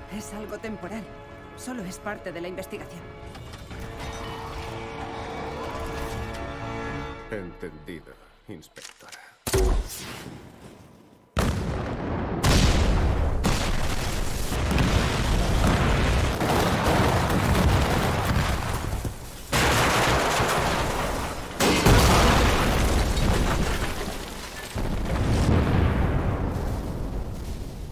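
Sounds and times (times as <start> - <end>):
explosions: 11.4 - 23.9, 24.8 - 27.9.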